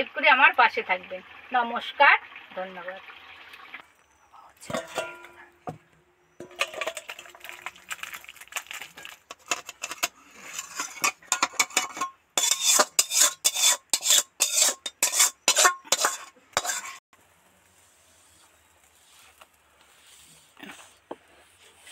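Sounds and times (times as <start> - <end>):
spatula scraping steel pan: 9.3 - 17.0.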